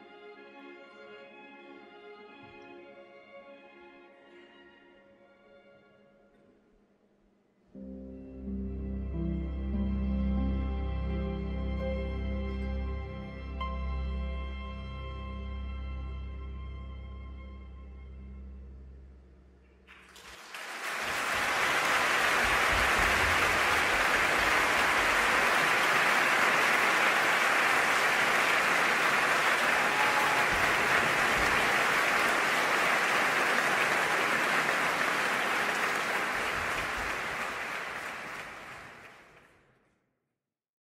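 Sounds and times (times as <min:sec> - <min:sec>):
orchestral music: 0:07.8 - 0:19.3, 0:19.9 - 0:39.3
audience applause: 0:19.9 - 0:39.6.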